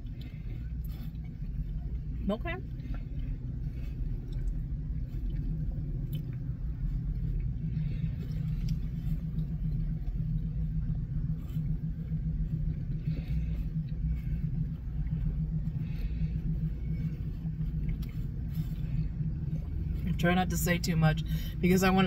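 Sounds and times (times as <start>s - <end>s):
car engine idling: 0.0s - 22.0s
chewing clicks and smacks: 4.2s - 7.6s.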